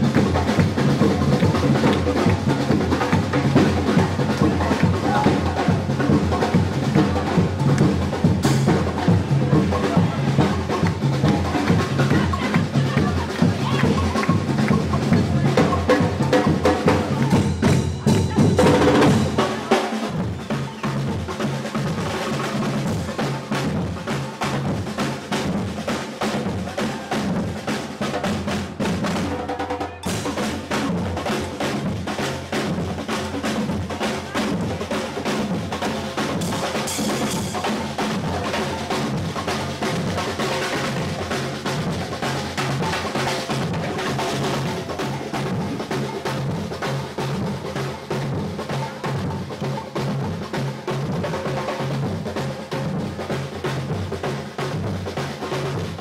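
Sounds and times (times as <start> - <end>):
bass drums: 0.0 - 29.4
snare drums: 0.0 - 56.0.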